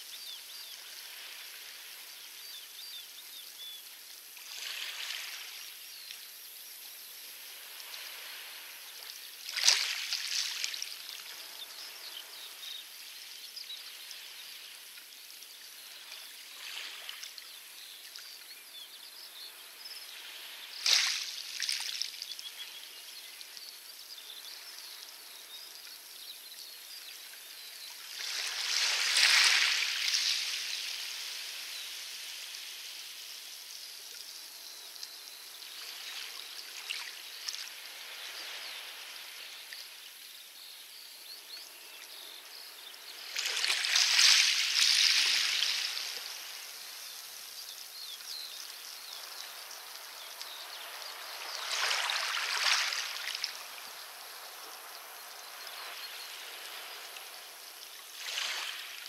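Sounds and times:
waves washing onto pebbles: 43.2 - 46.7, 50.1 - 59.0.

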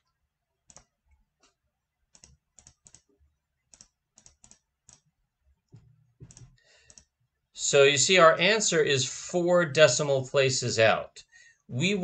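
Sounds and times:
computer mouse clicks: 0.0 - 3.1, 3.7 - 5.1, 5.7 - 7.1.

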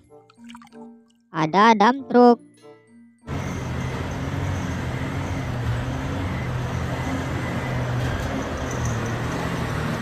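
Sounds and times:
truck diesel engine running: 3.3 - 10.0.

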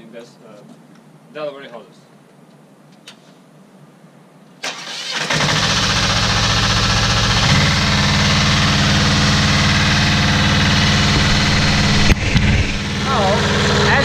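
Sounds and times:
pump engine cranking and running: 4.7 - 14.0.

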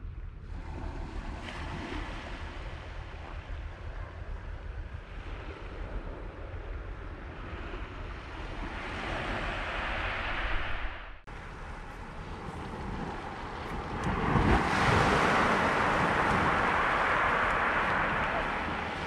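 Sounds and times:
wind buffeting microphone: 0.0 - 19.0
sea waves washing onto beach: 0.5 - 3.8, 7.3 - 19.0.

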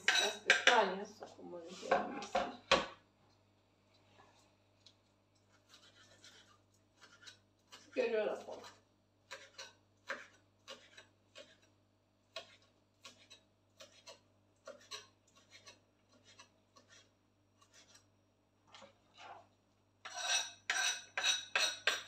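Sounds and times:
knife chopping on wooden board: 9.3 - 11.7, 12.3 - 17.0.

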